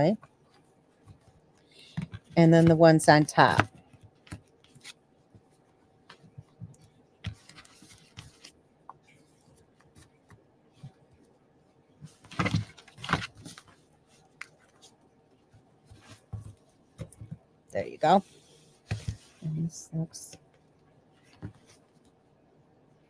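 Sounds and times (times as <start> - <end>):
soft taps and rustles: 0.2 - 17.5, 18.6 - 19.4, 20.3 - 22.2
paper being handled: 7.2 - 10.3.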